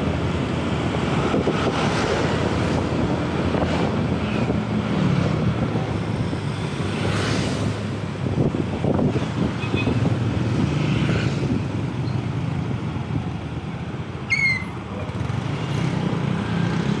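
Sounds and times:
wind noise: 0:00.0 - 0:14.0
traffic: 0:00.0 - 0:17.0.

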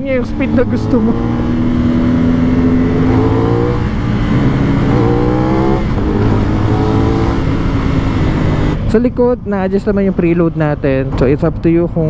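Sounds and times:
motorcycle engine accelerating: 0:00.0 - 0:09.2.

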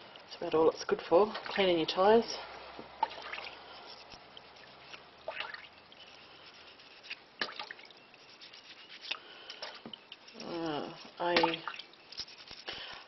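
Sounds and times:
water dripping: 0:01.3 - 0:06.2, 0:07.1 - 0:08.2, 0:09.1 - 0:12.2
toothbrush scrubbing glass jar: 0:06.0 - 0:07.2, 0:08.1 - 0:09.2, 0:12.0 - 0:12.9.

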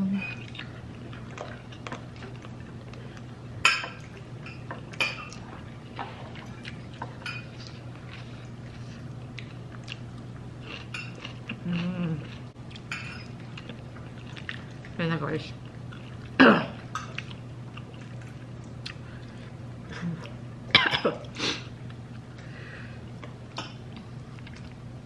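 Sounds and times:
steady low hum: 0:00.0 - 0:25.0
person humming: 0:11.6 - 0:12.3.

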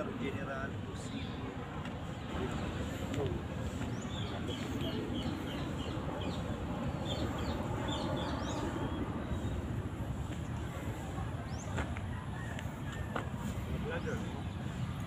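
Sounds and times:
low outdoor rumble: 0:00.0 - 0:15.0
bird chirping: 0:02.1 - 0:09.7.

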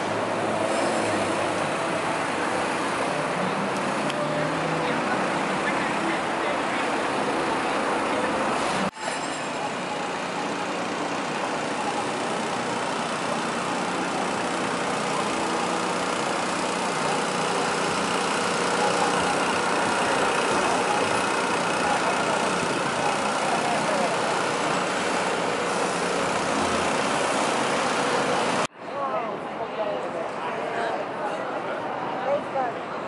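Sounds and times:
city street traffic: 0:00.0 - 0:33.0
truck engine idling: 0:09.5 - 0:28.7.

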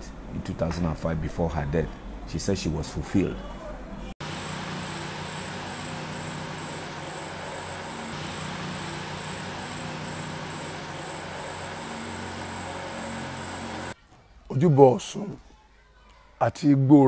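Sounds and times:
low even hum: 0:03.9 - 0:14.0
insects droning: 0:04.2 - 0:14.0.

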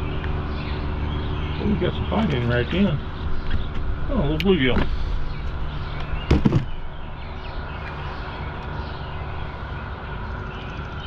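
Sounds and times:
outdoor rumble and hiss: 0:00.0 - 0:11.0.

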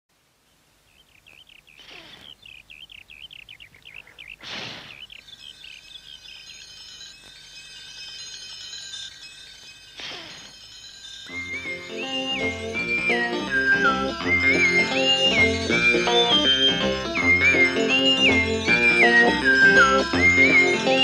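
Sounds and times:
rapid bird-like chirping: 0:00.4 - 0:21.0
shimmering chime-like tones: 0:05.2 - 0:21.0.

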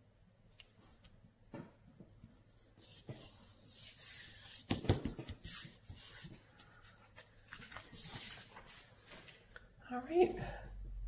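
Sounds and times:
paper rustling on tabletop: 0:02.6 - 0:09.6.

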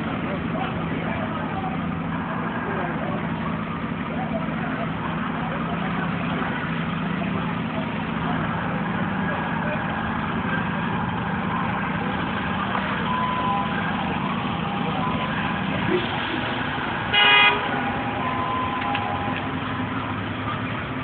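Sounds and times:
street traffic: 0:00.0 - 0:21.0
vehicle horn honk: 0:17.0 - 0:19.3.

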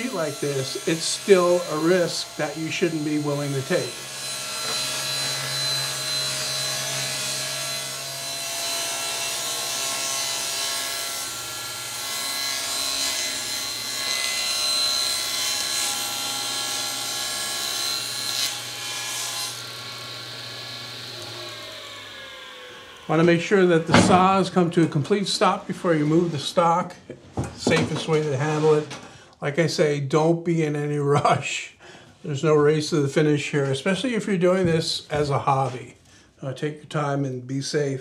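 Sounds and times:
table saw motor hum: 0:00.0 - 0:25.4
saw blade cutting plywood: 0:00.0 - 0:26.6.

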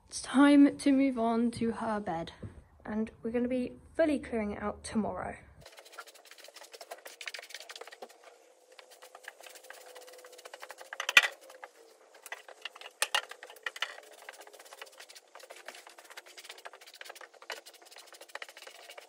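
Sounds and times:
tool scraping through wood shavings: 0:05.6 - 0:19.0.

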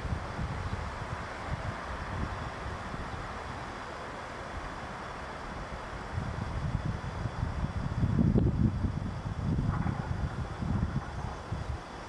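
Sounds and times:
wind buffeting microphone: 0:00.0 - 0:03.6, 0:05.5 - 0:12.0.

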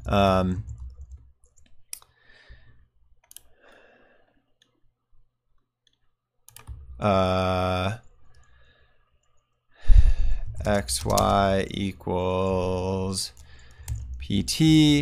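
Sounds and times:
keyboard and mouse clicks: 0:00.0 - 0:02.2, 0:03.2 - 0:03.5, 0:05.6 - 0:07.1, 0:10.5 - 0:11.6, 0:13.3 - 0:14.3.

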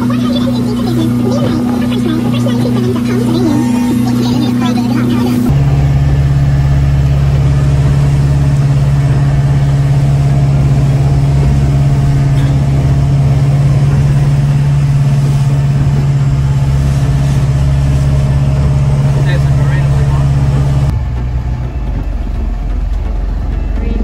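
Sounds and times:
motor boat engine running: 0:00.0 - 0:24.0.

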